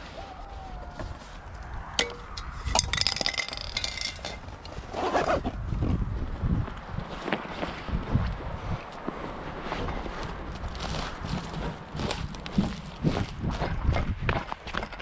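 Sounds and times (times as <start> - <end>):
spray cans clinking together: 2.7 - 4.4
bag rustling and scraping: 4.3 - 5.6, 9.6 - 13.4.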